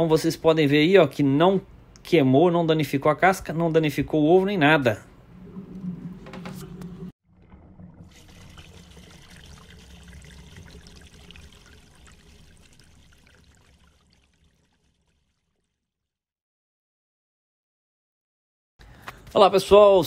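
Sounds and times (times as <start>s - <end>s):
water splashing and trickling: 5.2s - 16.1s.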